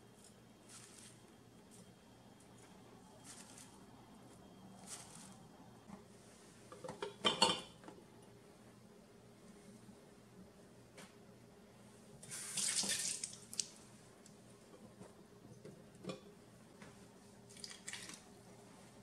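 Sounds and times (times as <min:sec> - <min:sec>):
steady low hum: 0:00.0 - 0:12.4.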